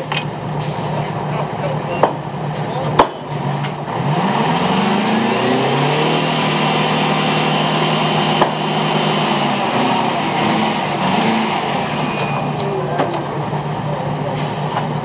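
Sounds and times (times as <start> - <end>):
engine revving at high revs: 3.0 - 13.8.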